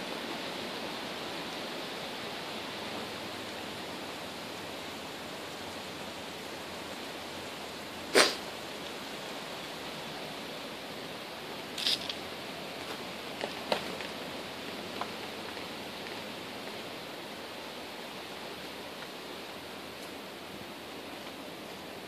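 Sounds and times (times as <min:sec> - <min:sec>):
steady hiss: 0:00.0 - 0:22.0
soft rustles and clicks: 0:11.8 - 0:12.2, 0:12.8 - 0:16.8.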